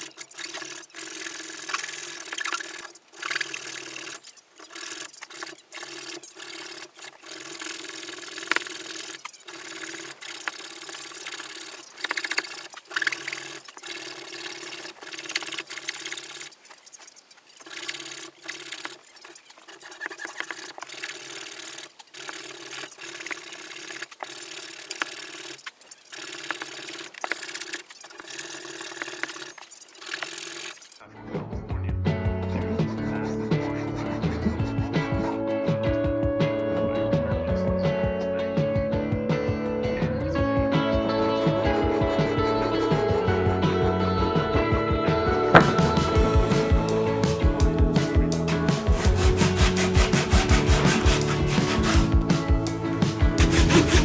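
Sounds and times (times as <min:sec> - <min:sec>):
hand saw cutting wood: 0:32.8 - 0:35.4, 0:45.6 - 0:46.2, 0:48.5 - 0:54.0.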